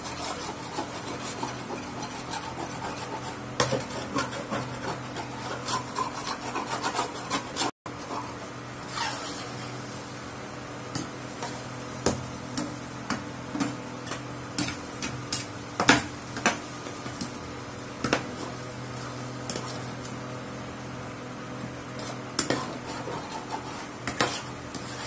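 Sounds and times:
metal spatula scraping a pan: 0:00.0 - 0:09.8, 0:18.4 - 0:20.0, 0:21.9 - 0:25.0
steady low hum: 0:00.0 - 0:25.0.

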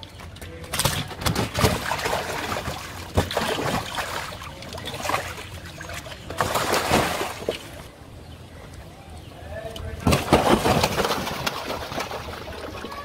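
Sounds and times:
fish splashing in water: 0:00.6 - 0:07.9, 0:10.0 - 0:13.0.

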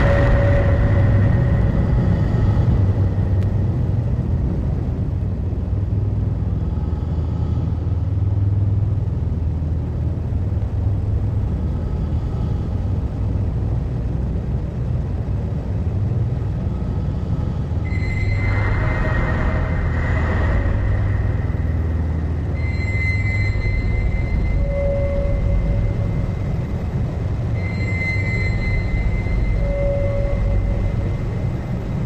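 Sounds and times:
thin high tone: 0:00.0 - 0:03.4, 0:17.8 - 0:32.0
dense low noise rumble: 0:00.0 - 0:32.0
noisy haze: 0:00.0 - 0:32.0.

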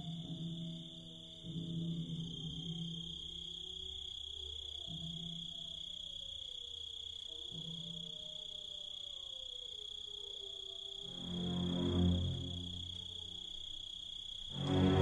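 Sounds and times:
crickets chirring: 0:00.0 - 0:15.0
wolves howling faintly: 0:02.6 - 0:14.0.

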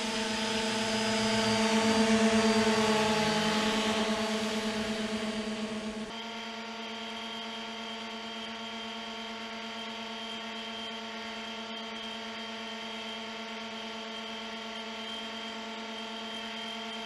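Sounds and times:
model hovercraft motor hum: 0:00.0 - 0:06.1.

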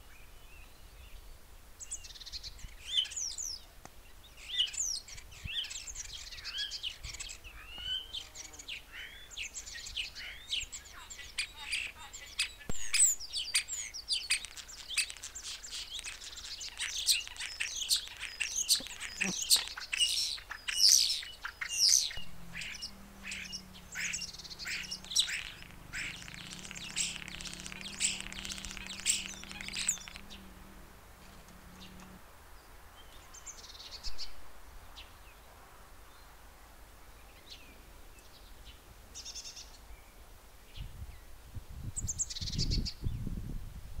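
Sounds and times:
small birds chirping: 0:00.0 - 0:36.4, 0:37.0 - 0:43.4
faint low hum: 0:20.7 - 0:33.5
low rumbles: 0:21.7 - 0:32.3.

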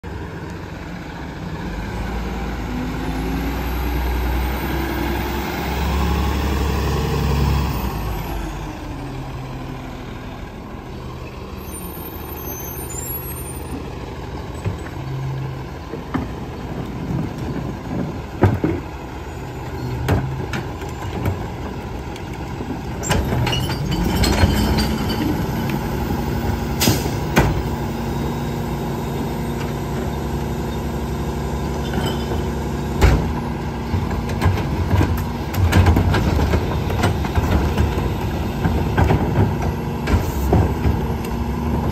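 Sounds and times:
garbage truck diesel engine: 0:00.0 - 0:41.9
clanks of carts being handled: 0:20.0 - 0:25.8, 0:31.7 - 0:41.2.

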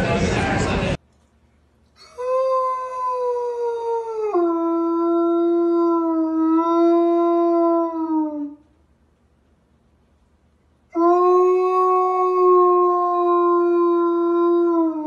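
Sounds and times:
dog howling: 0:02.1 - 0:08.6, 0:11.0 - 0:15.0.

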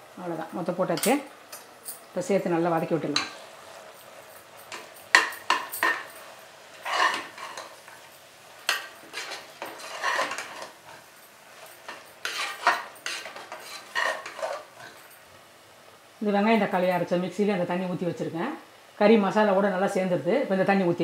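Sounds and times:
metal spoon scraping a pot: 0:04.6 - 0:07.8, 0:08.7 - 0:10.9, 0:11.6 - 0:15.1.

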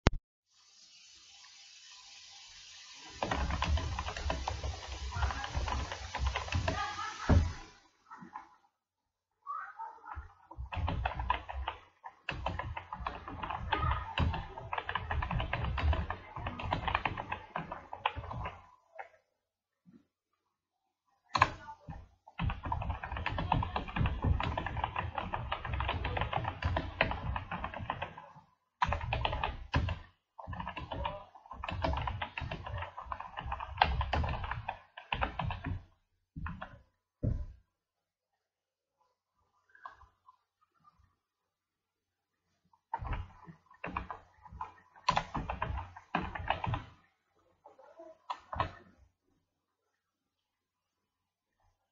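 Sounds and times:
fast typing on keyboard: 0:03.2 - 0:07.6, 0:10.2 - 0:18.7, 0:22.4 - 0:36.8, 0:43.0 - 0:47.0.

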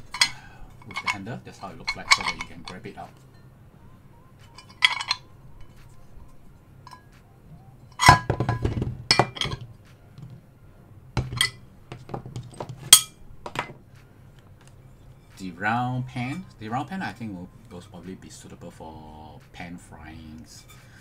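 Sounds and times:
cast iron pans clinking: 0:00.0 - 0:03.5, 0:04.4 - 0:07.2, 0:07.9 - 0:10.3, 0:11.2 - 0:13.8.

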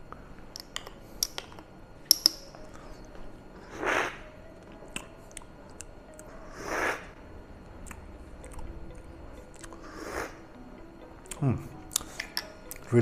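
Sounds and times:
loud slurps of coffee: 0:03.7 - 0:04.2, 0:06.6 - 0:07.1.

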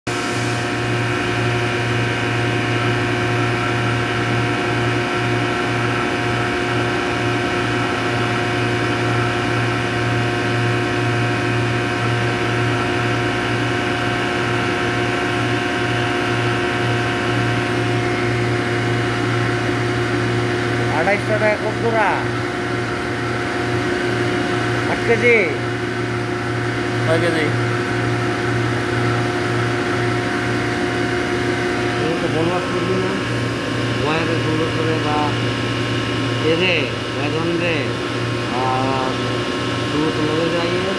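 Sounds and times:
centrifuge machines humming: 0:00.1 - 0:40.9
steady higher tones: 0:16.8 - 0:40.9.

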